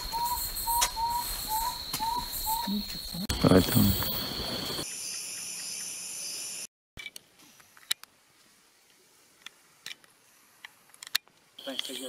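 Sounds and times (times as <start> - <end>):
night insects trilling: 0.0 - 6.7.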